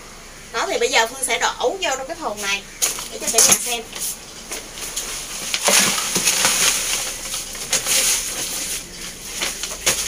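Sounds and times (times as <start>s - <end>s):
soil pouring into plastic bucket: 4.9s - 10.0s.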